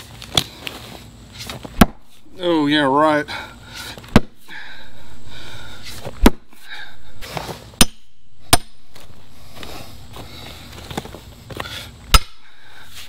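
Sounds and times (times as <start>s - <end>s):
sledgehammer striking steel wedge: 1.8s - 2.2s, 4.1s - 4.4s, 6.2s - 6.6s, 7.8s - 9.0s, 12.1s - 12.5s.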